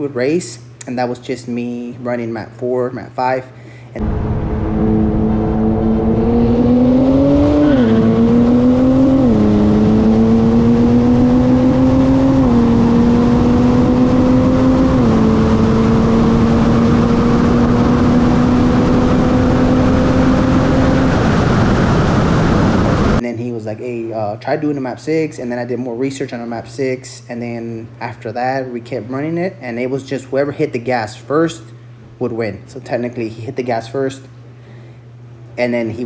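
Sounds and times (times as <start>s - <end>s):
car engine accelerating: 4.0s - 23.2s
wind and road noise: 4.0s - 23.2s.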